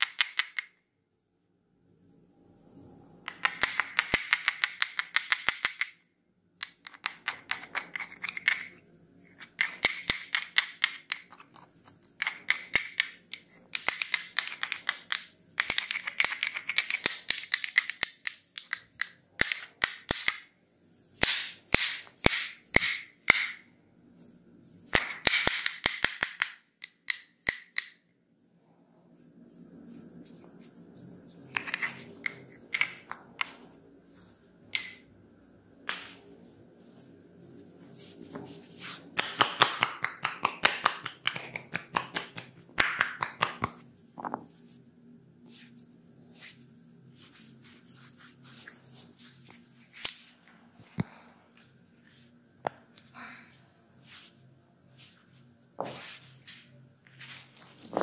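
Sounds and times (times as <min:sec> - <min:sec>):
wooden sticks clacking: 0:00.0 - 0:00.8, 0:03.3 - 0:06.0, 0:06.6 - 0:20.5, 0:21.2 - 0:23.6, 0:24.9 - 0:28.1, 0:31.5 - 0:33.8, 0:34.7 - 0:35.1.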